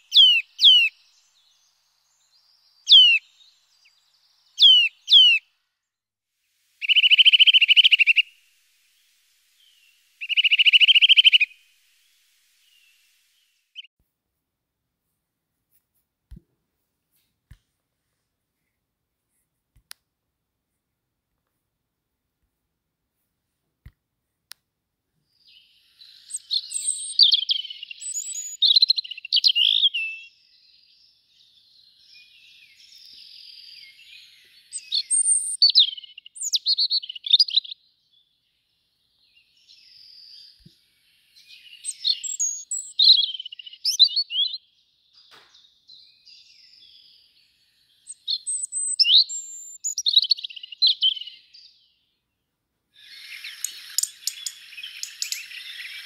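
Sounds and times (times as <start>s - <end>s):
robin singing: 0.0s - 5.5s, 6.8s - 13.9s, 25.3s - 52.4s, 53.0s - 56.0s
hissing crackling noise: 6.4s - 13.7s, 53.0s - 56.0s.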